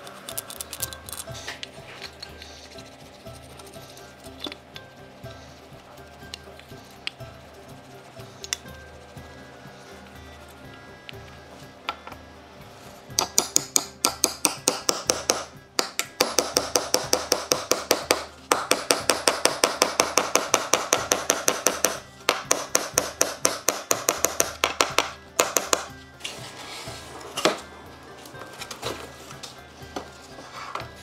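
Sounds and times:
hammer striking nails: 0:13.2 - 0:25.9.

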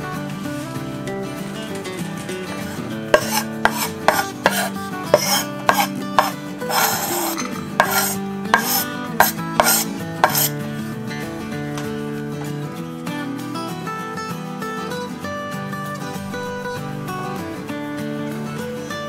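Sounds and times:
soft acoustic guitar music: 0:00.0 - 0:19.0
rasping scraping noises: 0:02.6 - 0:10.5.

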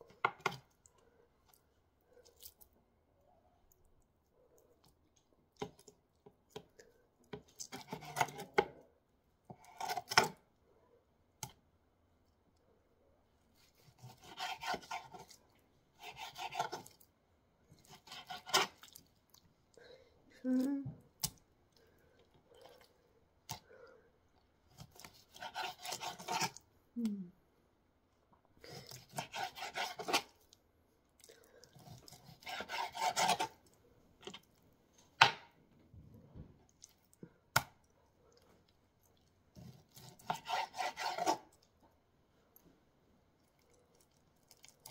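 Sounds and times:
knife sawing through raw meat: 0:13.6 - 0:15.3, 0:16.0 - 0:16.9, 0:17.8 - 0:18.8, 0:25.0 - 0:26.6, 0:28.8 - 0:30.4, 0:31.8 - 0:33.6, 0:39.6 - 0:41.4.

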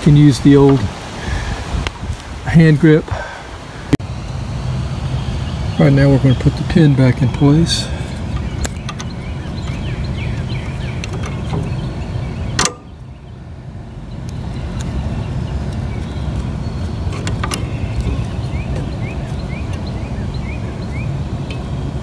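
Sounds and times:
low background rumble: 0:03.5 - 0:22.0
light metallic clicks: 0:08.3 - 0:09.8.

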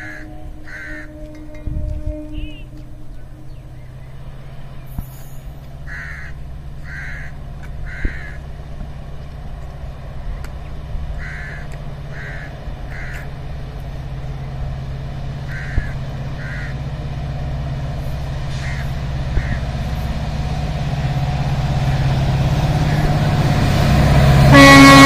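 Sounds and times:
crow cawing: 0:00.0 - 0:01.1, 0:05.9 - 0:07.3, 0:07.9 - 0:08.4, 0:11.2 - 0:13.2, 0:15.5 - 0:16.8
distant diesel locomotive rumble: 0:00.0 - 0:25.0.

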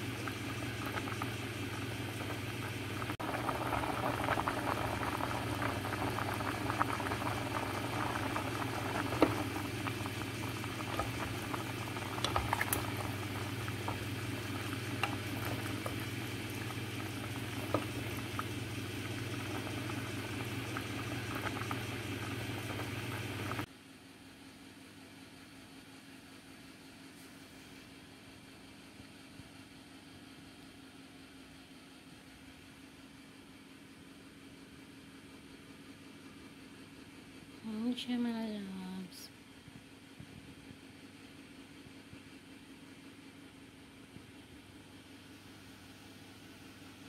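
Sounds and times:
low hum: 0:00.0 - 0:23.7
water boiling and bubbling: 0:00.0 - 0:23.7.

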